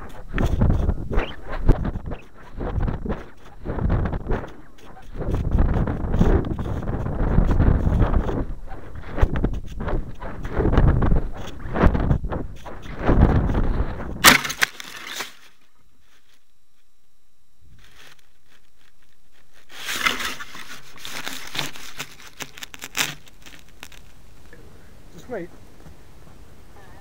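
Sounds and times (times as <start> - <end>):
twigs crackling and rustling: 0.0 - 16.5, 17.7 - 24.6
sharp crack: 14.1 - 15.5.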